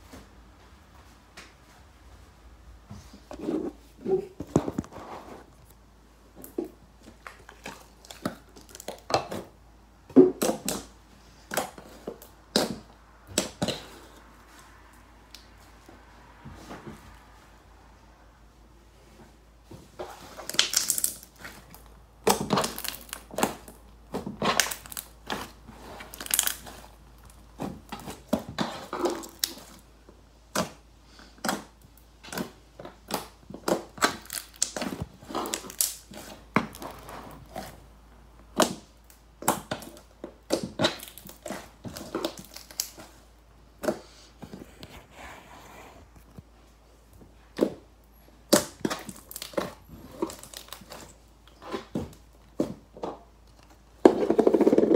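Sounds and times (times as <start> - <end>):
slime popping and crackling: 20.4 - 29.8, 31.4 - 37.7, 38.5 - 43.2, 48.5 - 51.8.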